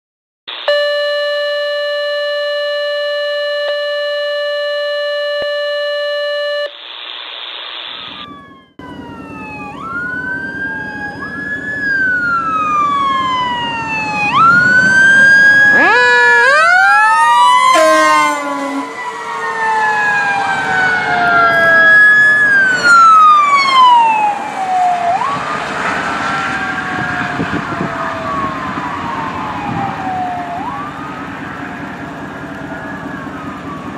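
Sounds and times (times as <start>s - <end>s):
emergency vehicle sirens wailing: 0.5s - 6.1s, 8.1s - 33.9s
steady electronic tone: 0.5s - 8.4s
low vehicle rumble: 8.3s - 33.9s.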